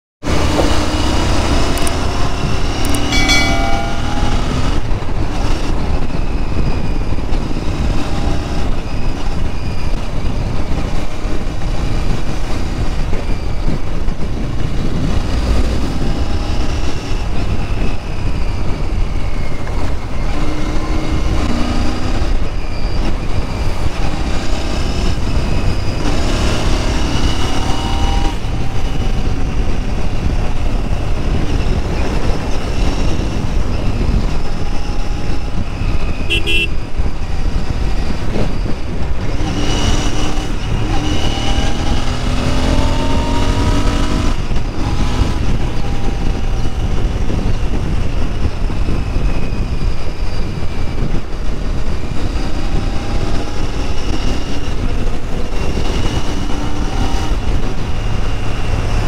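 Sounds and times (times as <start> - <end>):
motorcycle engine accelerating: 0.2 - 59.0.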